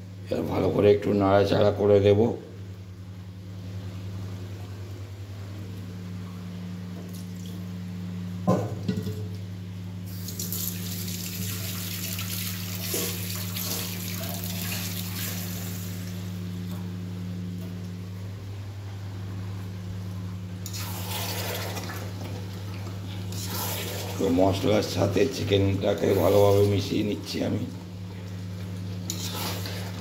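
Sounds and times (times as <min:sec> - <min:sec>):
constant low hum: 0:00.0 - 0:30.0
tap water running: 0:10.1 - 0:16.2, 0:20.6 - 0:24.3.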